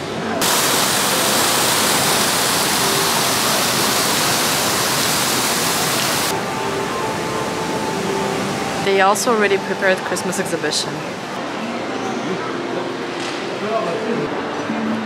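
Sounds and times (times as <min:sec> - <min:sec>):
fountain water splashing into pool: 0:00.4 - 0:06.4.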